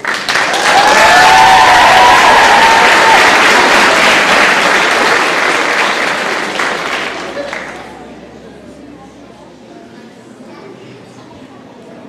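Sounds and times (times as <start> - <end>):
audience applauding: 0.0 - 8.1
crowd cheering: 0.0 - 8.2.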